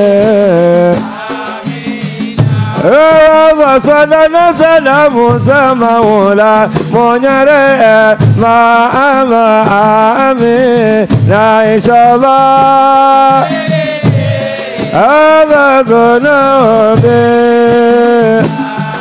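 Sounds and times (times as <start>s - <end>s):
man singing a devotional song: 0.0s - 19.0s.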